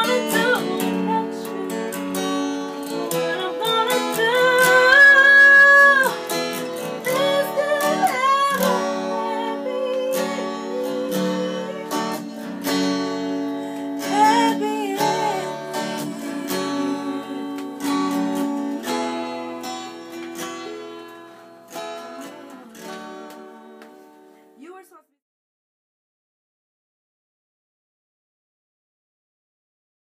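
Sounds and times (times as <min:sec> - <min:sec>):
person singing: 0:00.0 - 0:12.7, 0:14.0 - 0:19.0, 0:20.3 - 0:23.4
acoustic guitar strumming: 0:00.0 - 0:24.6.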